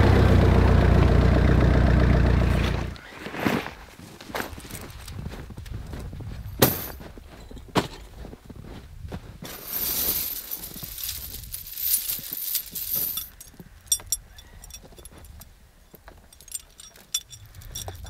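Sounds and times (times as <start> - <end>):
scraping and rustling: 9.4 - 15.4
metal chain links clinking: 9.5 - 18.0.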